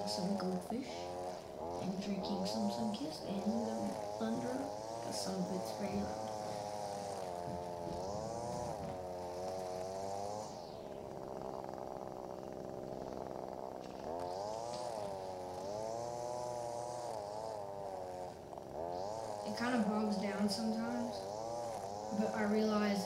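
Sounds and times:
string trimmer running: 0:00.0 - 0:23.0.

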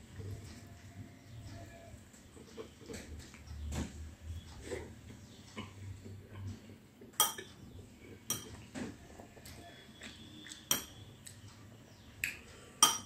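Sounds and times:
metal spoon clinking on crockery: 0:08.3 - 0:08.6.

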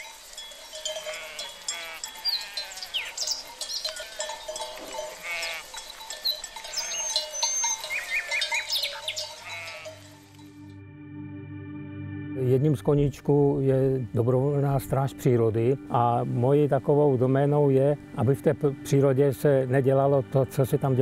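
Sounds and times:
sheep bleating: 0:01.0 - 0:03.2, 0:05.0 - 0:05.8, 0:06.7 - 0:10.1.

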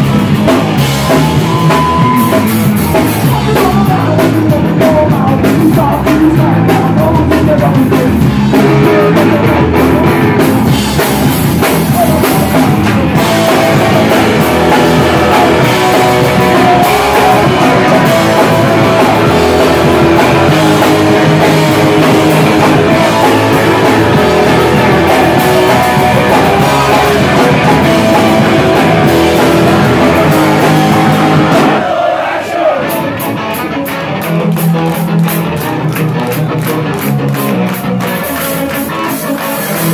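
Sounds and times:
electric guitar: 0:00.0 - 0:31.8, 0:32.7 - 0:39.9
drum kit: 0:00.0 - 0:39.9
person singing into microphone: 0:03.1 - 0:10.5, 0:11.8 - 0:28.6.

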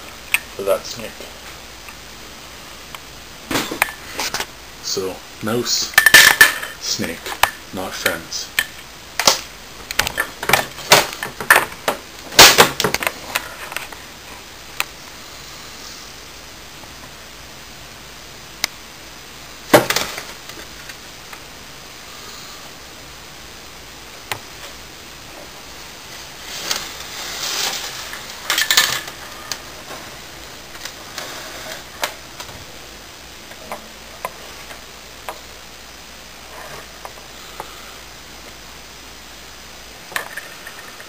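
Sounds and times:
faint steady hum: 0:00.0 - 0:41.0
snake scuffling on plastic floor: 0:24.2 - 0:35.6.

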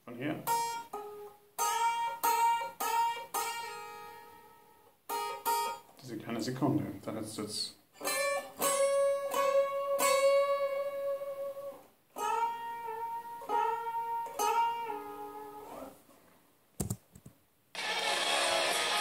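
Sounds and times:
clean electric guitar picking: 0:00.4 - 0:05.8, 0:08.0 - 0:15.9.

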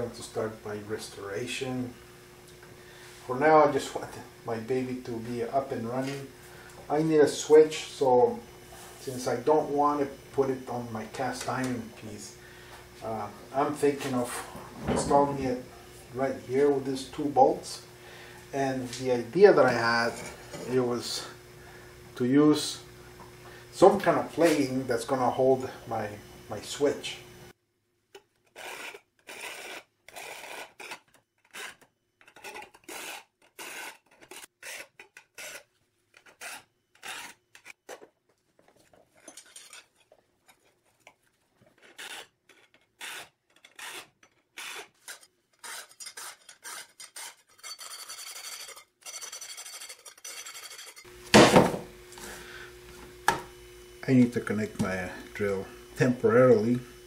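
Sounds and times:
file rasping on saw blade: 0:28.5 - 0:37.8, 0:41.8 - 0:51.1
loud knock: 0:51.4 - 0:51.9.

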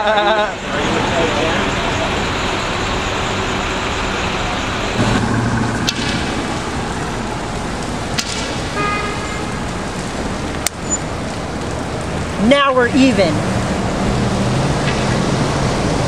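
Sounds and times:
street traffic rumble: 0:00.0 - 0:16.0
sharp clicks: 0:05.0 - 0:08.8.

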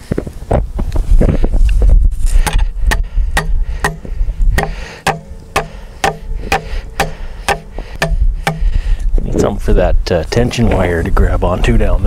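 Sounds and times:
hammer striking steel rebar: 0:02.5 - 0:08.7.

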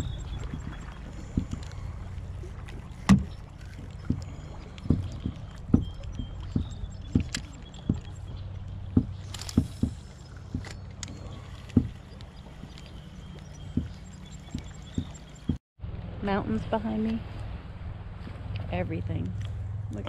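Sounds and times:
steady low rumble: 0:00.0 - 0:20.0
paddle knocks against kayak hull: 0:03.0 - 0:03.3.

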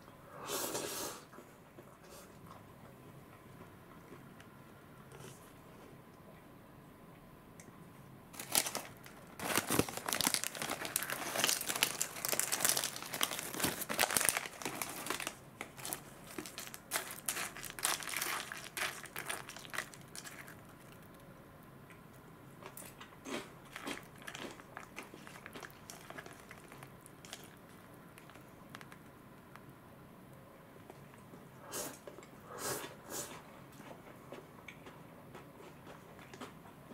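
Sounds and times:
foil bag crinkling: 0:08.4 - 0:21.2, 0:23.7 - 0:29.1
snacks clicking and rustling: 0:08.4 - 0:29.7, 0:33.8 - 0:36.8.

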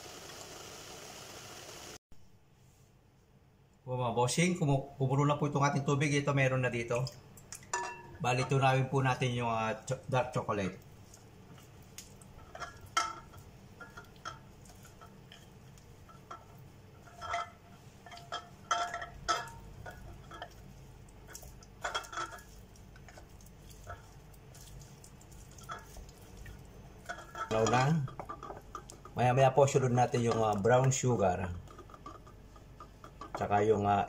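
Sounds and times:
wooden spoon stirring in glass bowl: 0:10.7 - 0:33.6.

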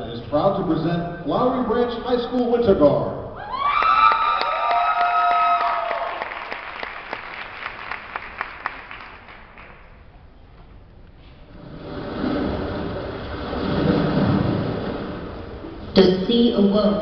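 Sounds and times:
high held cheers: 0:03.4 - 0:06.7
crowd applauding: 0:03.6 - 0:10.0.

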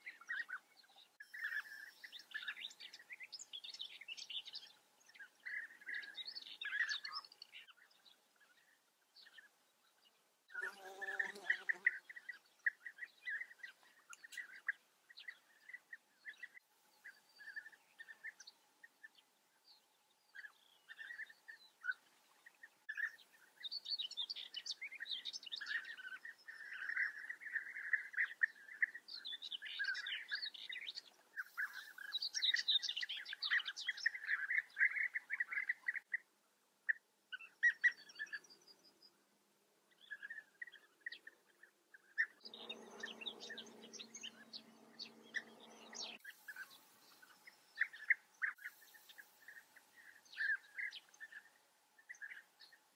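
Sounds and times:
birds chattering calls: 0:42.2 - 0:51.3
higher bird chirps: 0:42.2 - 0:51.4.

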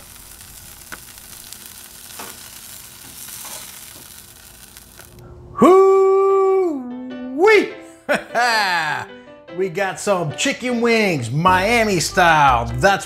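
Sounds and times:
chicken wings sizzling on griddle: 0:00.0 - 0:05.2.

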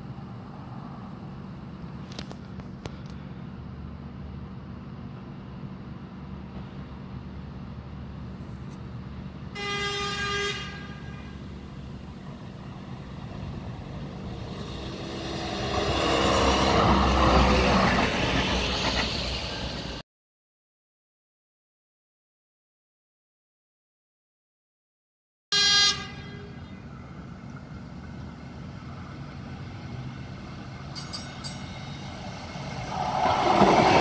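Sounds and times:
train passing: 0:00.0 - 0:08.3, 0:08.9 - 0:20.0, 0:26.1 - 0:34.0
train horn: 0:09.6 - 0:11.5, 0:25.5 - 0:26.7.

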